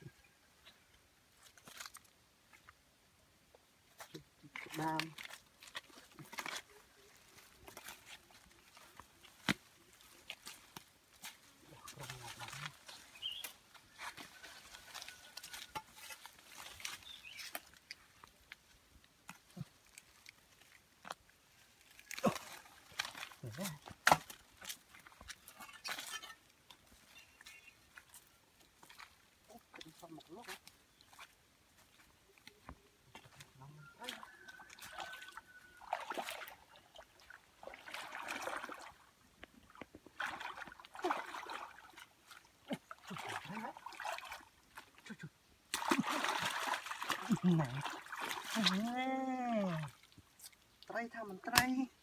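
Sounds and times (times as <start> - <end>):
wading through muddy water: 4.0 - 52.0
water dripping and trickling: 33.1 - 51.7.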